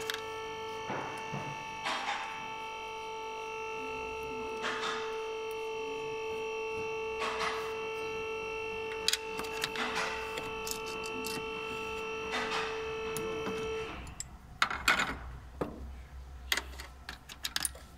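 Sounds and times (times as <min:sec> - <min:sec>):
electrical hum with tones: 0:00.0 - 0:17.9.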